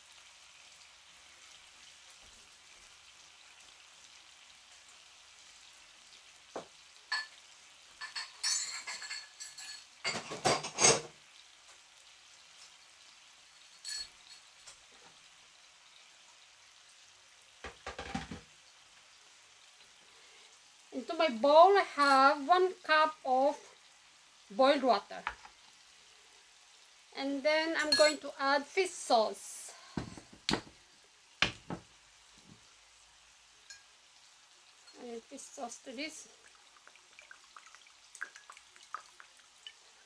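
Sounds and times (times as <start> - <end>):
pork sizzling in a skillet: 0.0 - 40.0
utensil clinking on dishes: 7.1 - 7.3, 8.0 - 11.1, 13.6 - 14.5, 27.8 - 28.2.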